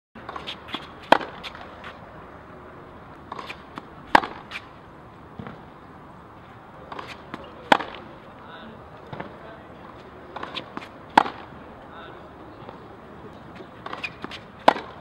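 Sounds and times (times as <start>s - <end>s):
tennis ball struck with racket: 0.2s - 2.0s, 3.3s - 4.7s, 6.8s - 8.1s, 10.3s - 11.6s, 13.6s - 15.0s.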